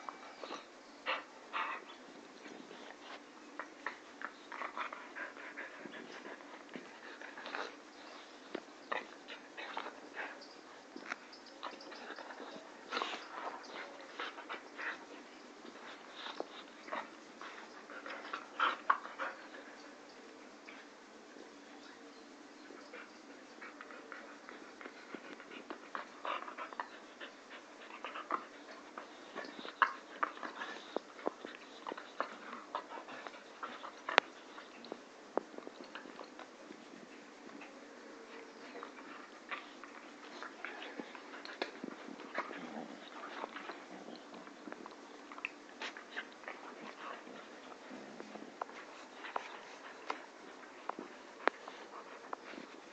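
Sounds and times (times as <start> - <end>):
puppies snapping and scuffling: 23.7 - 52.9.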